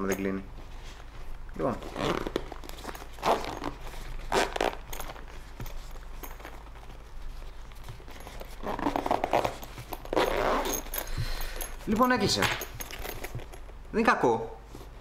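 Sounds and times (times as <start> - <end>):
fabric rustling: 0.0 - 13.8
zipper being pulled shut: 1.7 - 6.6, 8.0 - 12.1.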